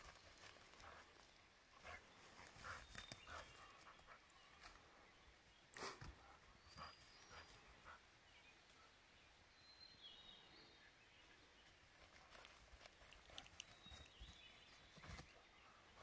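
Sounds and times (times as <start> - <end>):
faint high bird chirps: 13.4 - 16.0.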